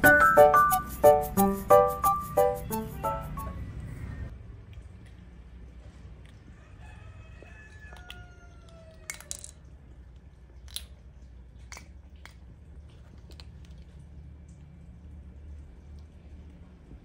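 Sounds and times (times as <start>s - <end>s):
plastic toy clicks: 9.0s - 9.6s.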